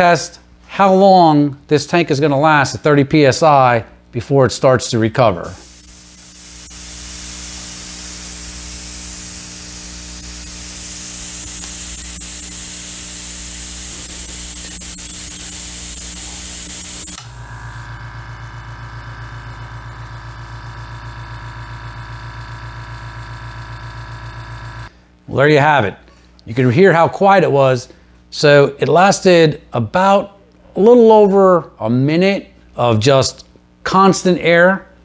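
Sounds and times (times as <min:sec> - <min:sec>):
compressed air hissing: 0:05.4 - 0:20.5
compressor motor humming: 0:05.4 - 0:25.0.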